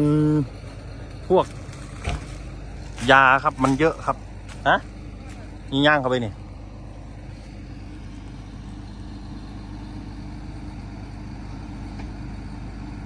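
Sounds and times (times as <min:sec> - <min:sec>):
excavator diesel engine running: 0:00.0 - 0:13.0.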